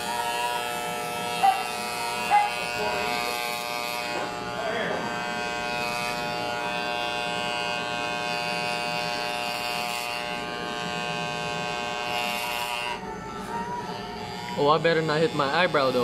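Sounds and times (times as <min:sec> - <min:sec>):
electric hair clippers humming: 0:00.0 - 0:16.0.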